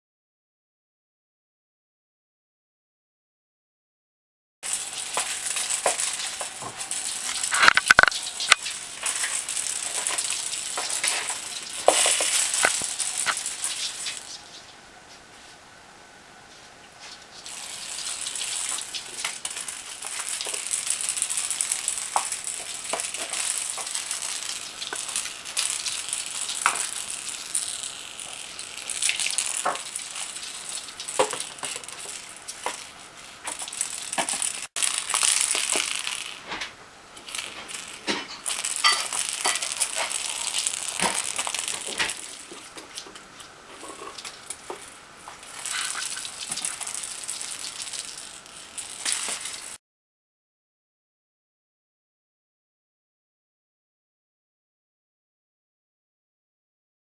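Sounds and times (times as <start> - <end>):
toy ball rattling on carpet: 33.5 - 36.4.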